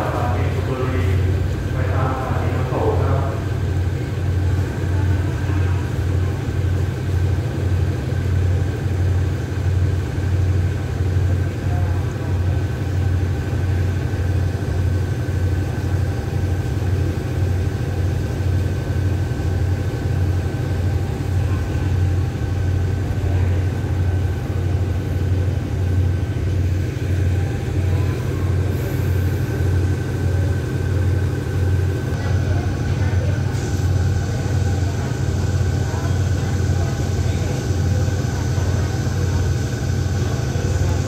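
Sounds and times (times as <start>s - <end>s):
faint steady whine: 0.0s - 5.6s
diesel locomotive idling hum: 0.0s - 41.0s.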